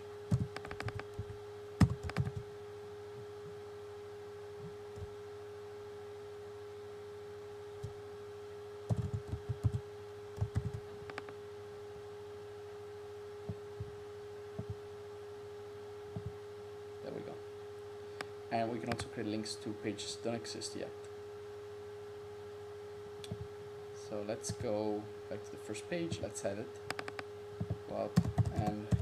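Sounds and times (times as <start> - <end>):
steady low hum: 0.0 - 29.0
computer keyboard typing: 0.3 - 1.2, 1.8 - 2.4, 8.9 - 9.8, 10.4 - 11.3, 26.9 - 29.0.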